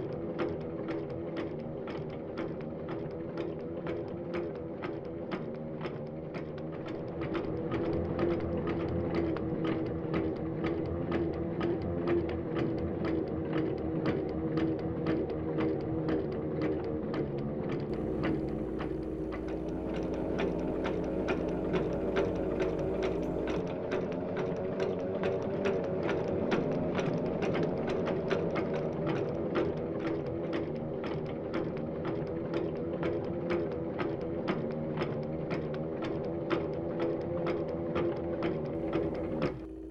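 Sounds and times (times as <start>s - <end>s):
machine humming and clicking: 0.0s - 39.9s
deeper hum: 17.9s - 23.6s, 38.8s - 39.9s
faint high whine: 17.9s - 23.6s, 38.8s - 39.9s.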